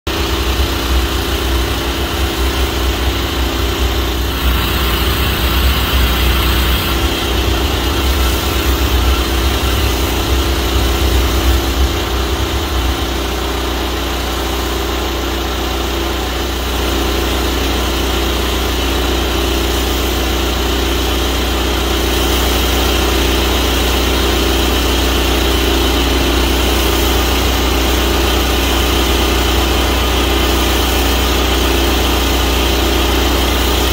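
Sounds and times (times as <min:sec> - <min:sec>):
pressure washer engine running: 0:00.1 - 0:33.9
water spraying hiss: 0:02.3 - 0:13.6.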